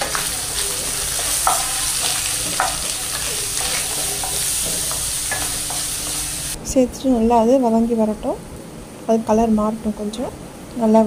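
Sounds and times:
onions sizzling in hot oil: 0:00.0 - 0:06.6
spatula scraping a pan: 0:00.0 - 0:06.6.

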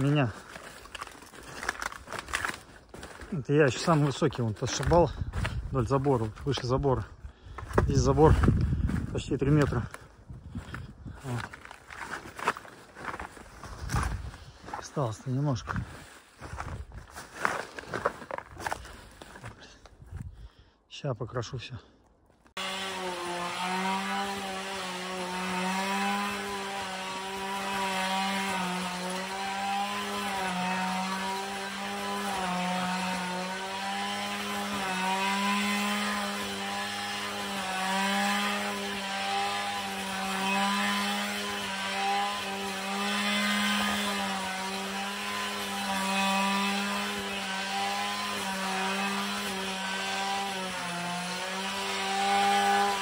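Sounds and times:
brush cutter running at high revs: 0:22.6 - 0:53.0.

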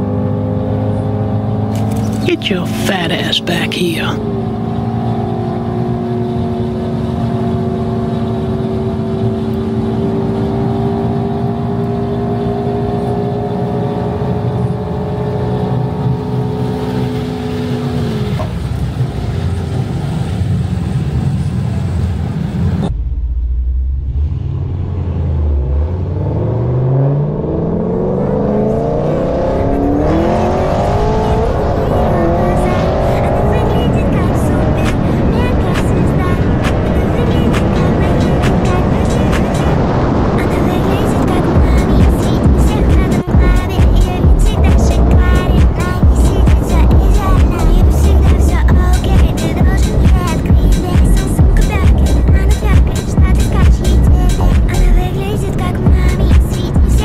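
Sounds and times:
car engine accelerating: 0:00.0 - 0:57.0.

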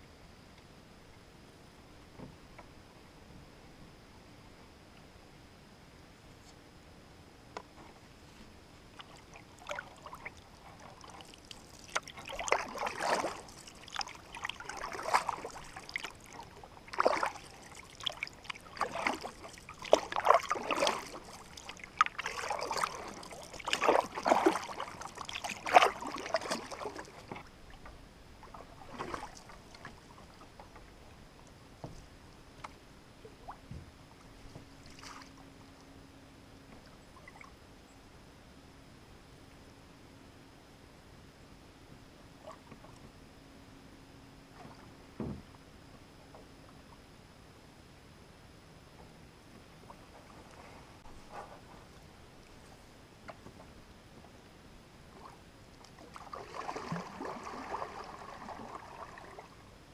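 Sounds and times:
faint water sounds: 0:00.0 - 0:59.9
paddle strokes in water: 0:07.6 - 0:35.6, 0:44.5 - 0:47.1, 0:48.8 - 0:59.9.

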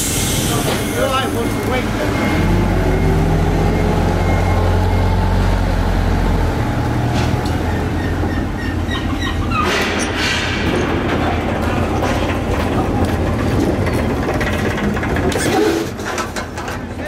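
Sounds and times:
short high squeaks: 0:08.0 - 0:09.8.

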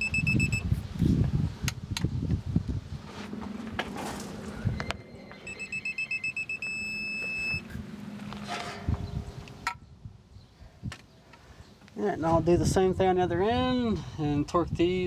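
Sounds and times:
torque wrench beeping: 0:00.0 - 0:00.6, 0:04.6 - 0:07.7.

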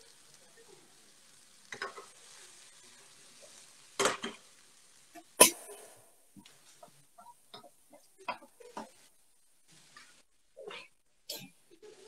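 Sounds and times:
onions sizzling in a pan: 0:00.0 - 0:12.0
wooden spoon scraping a pan: 0:05.2 - 0:12.0.

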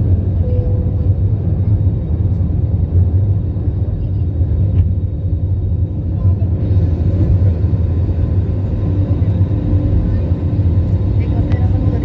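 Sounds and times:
jet engines rumbling in cabin: 0:00.0 - 0:12.0.

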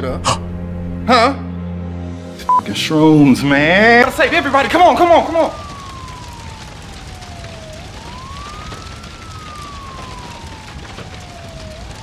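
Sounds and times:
steady rushing noise: 0:03.5 - 0:12.0
siren wailing: 0:03.6 - 0:12.0.

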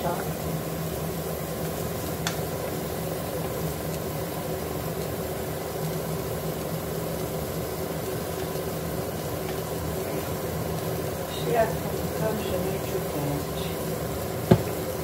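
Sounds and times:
kitchen appliance motor humming: 0:08.1 - 0:15.0.

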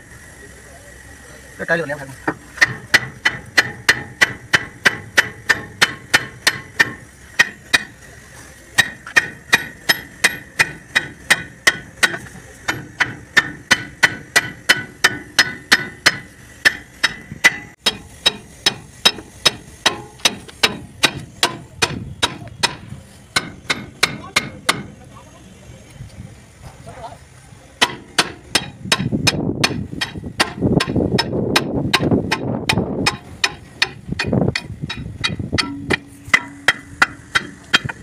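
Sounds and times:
hammer ringing on steel: 0:27.8 - 0:37.9.

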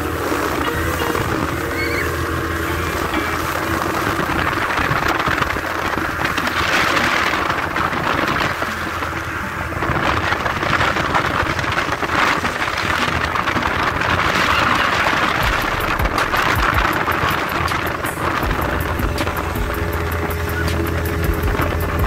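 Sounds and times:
low engine rumble: 0:00.0 - 0:22.0
water rushing along boat hull: 0:00.0 - 0:22.0
wind: 0:00.0 - 0:22.0.

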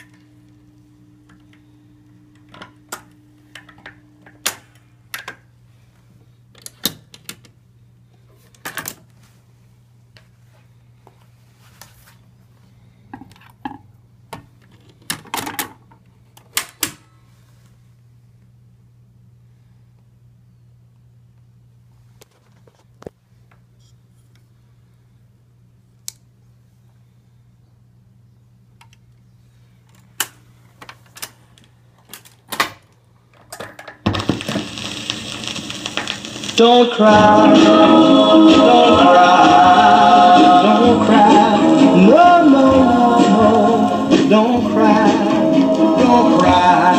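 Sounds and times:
steady low hum: 0:00.0 - 0:15.1
low steady hum: 0:00.0 - 0:46.9
record changer clicks and clunks: 0:33.5 - 0:37.6.

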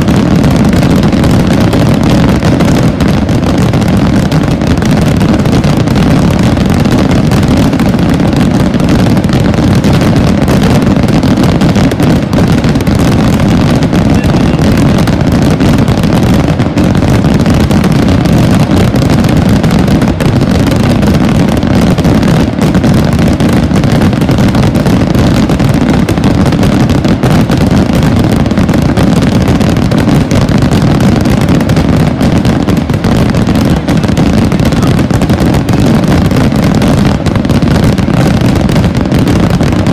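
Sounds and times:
firework rockets bursting: 0:00.0 - 0:39.9.

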